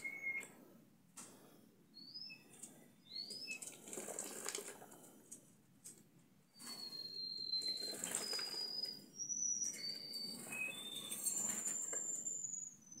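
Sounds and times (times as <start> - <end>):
canary singing: 0.0 - 0.5, 1.9 - 3.8, 6.5 - 13.0
bird splashing and fluttering wings: 3.4 - 5.1, 7.6 - 8.8.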